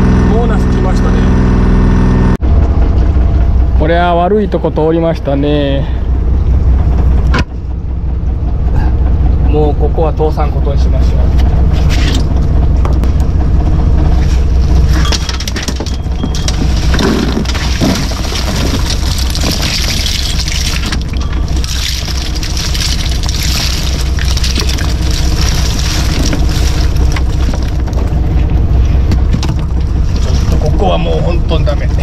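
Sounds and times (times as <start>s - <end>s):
boat engine humming: 0.0s - 32.0s
shells rattling and crunching: 15.1s - 28.2s.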